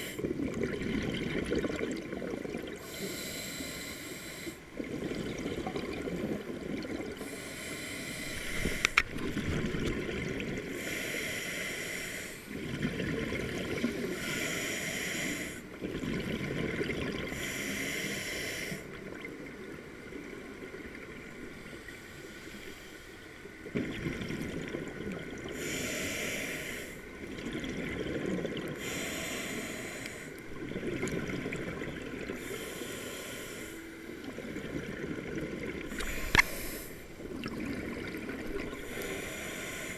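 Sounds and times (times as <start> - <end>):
regulator inhale hiss: 0.0 - 0.2, 2.8 - 4.7, 7.2 - 9.1, 10.8 - 12.5, 14.0 - 15.8, 17.3 - 19.0, 21.9 - 23.3, 25.5 - 27.1, 28.8 - 30.4, 32.3 - 34.3, 35.9 - 37.1, 38.8 - 39.9
exhaled bubbles rushing: 0.2 - 2.8, 4.8 - 7.2, 9.1 - 10.7, 37.2 - 38.9.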